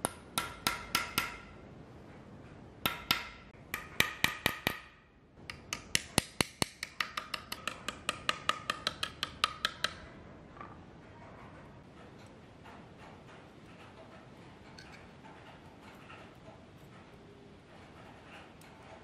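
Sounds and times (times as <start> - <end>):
hammer tapping steel punch: 0.0 - 1.6, 2.8 - 10.1.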